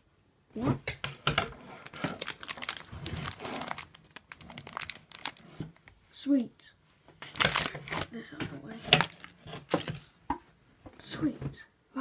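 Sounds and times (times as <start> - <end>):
crinkly wrapping crumpling: 1.0 - 6.6, 7.2 - 10.1.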